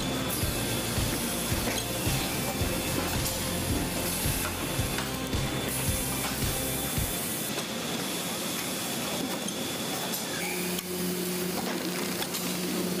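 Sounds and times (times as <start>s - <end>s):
low hum: 0.0s - 7.1s
packaging machinery hissing: 0.0s - 11.6s.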